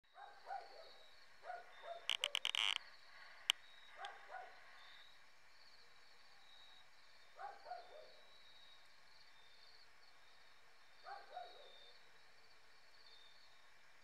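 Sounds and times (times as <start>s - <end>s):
high insect trill: 1.0s - 7.3s
animal calling: 1.5s - 4.6s.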